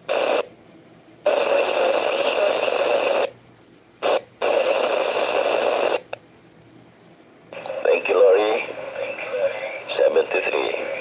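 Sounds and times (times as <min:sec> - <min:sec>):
radio static bursts: 0:00.1 - 0:00.5, 0:01.3 - 0:03.4, 0:04.0 - 0:06.2, 0:07.5 - 0:11.0.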